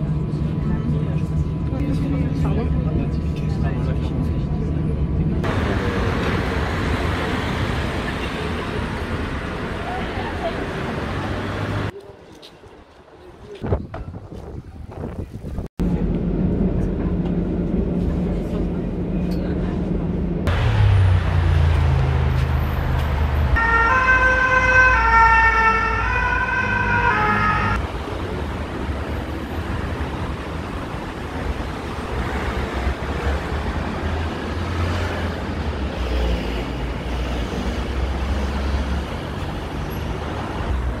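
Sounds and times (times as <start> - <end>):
street traffic rumble: 0.0 - 41.0
two-tone siren: 23.6 - 27.8.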